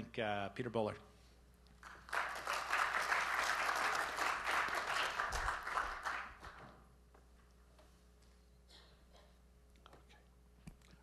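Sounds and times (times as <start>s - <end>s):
audience applauding: 1.8s - 6.6s.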